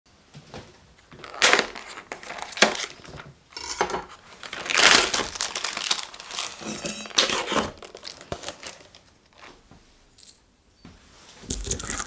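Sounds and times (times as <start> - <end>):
plastic tray and film crinkling: 1.0 - 3.3, 4.0 - 9.6, 11.5 - 12.0.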